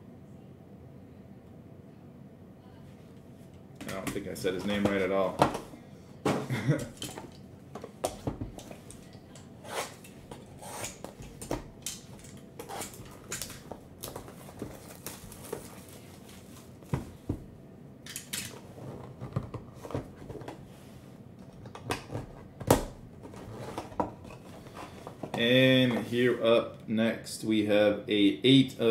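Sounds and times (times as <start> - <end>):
shrink wrap crinkling: 11.8 - 16.9.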